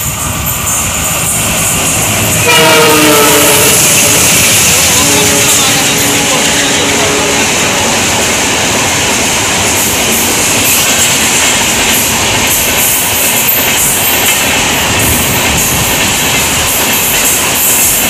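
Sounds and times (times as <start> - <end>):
train wheels rushing on rail: 0.0 - 18.0
wheels clacking over rail joints: 0.0 - 18.0.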